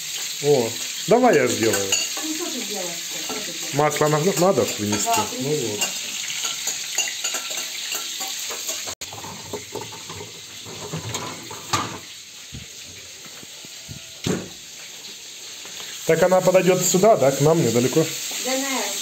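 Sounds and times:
pan being washed: 0.0s - 15.3s
tap water running into sink: 9.0s - 14.8s.

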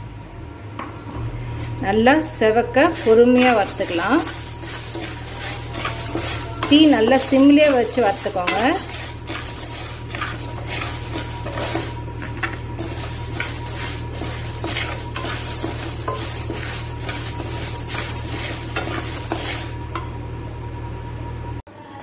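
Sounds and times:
spatula scraping lentils in pan: 2.7s - 20.1s.

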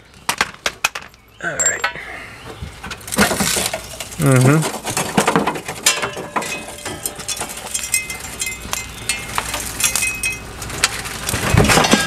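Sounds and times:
tools clinking on metal frame: 1.4s - 2.0s, 5.8s - 10.5s
ringing metal tones: 1.4s - 2.1s, 5.8s - 10.7s, 11.5s - 12.0s.

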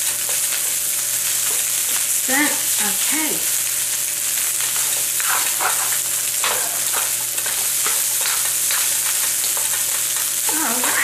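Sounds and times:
rice sizzling in oil: 0.0s - 11.0s
spatula scraping wok: 4.4s - 11.0s.

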